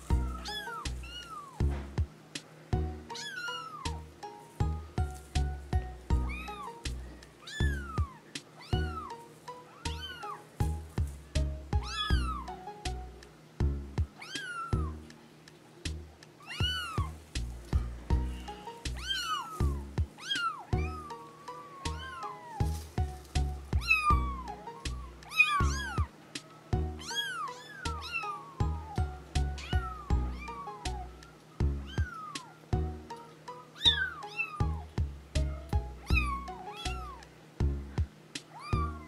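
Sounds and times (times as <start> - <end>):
kittens mewing: 0.0 - 1.7, 3.1 - 4.0, 6.1 - 10.5, 11.3 - 12.6, 14.1 - 15.0, 16.4 - 32.7, 33.8 - 37.3, 38.5 - 39.0
background music with beat: 0.0 - 3.2, 3.8 - 27.2, 27.9 - 34.0, 34.6 - 39.0.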